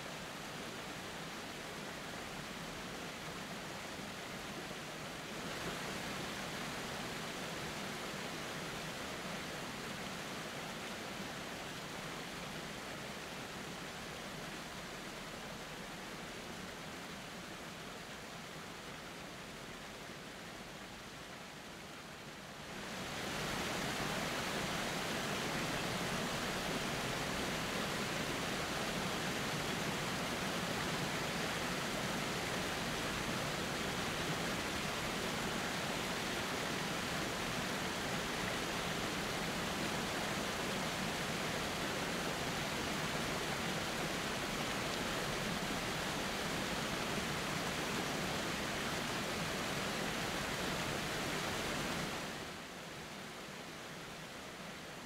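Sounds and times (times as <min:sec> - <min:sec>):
waterfall and creek roaring: 0:00.0 - 0:55.0.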